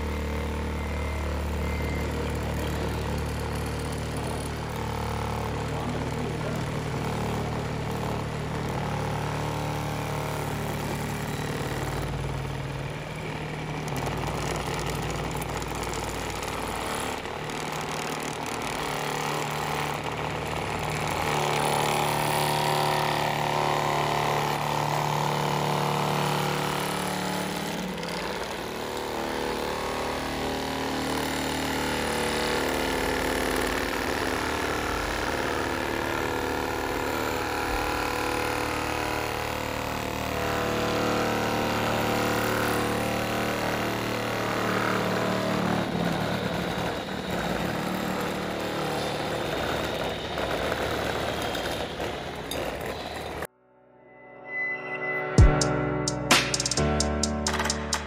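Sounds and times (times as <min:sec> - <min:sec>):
toy truck engine sound: 0:00.0 - 0:53.5.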